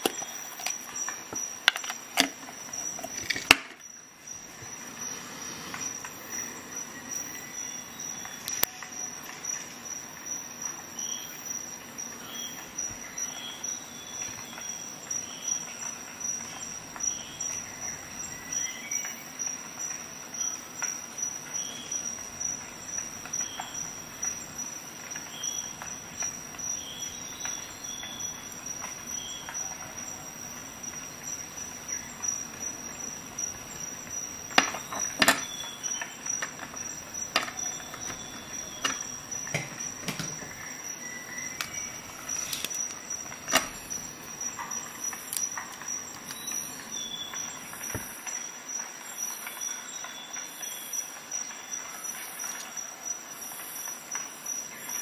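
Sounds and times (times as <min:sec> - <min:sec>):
steady high-pitched whine: 0:00.0 - 0:55.0.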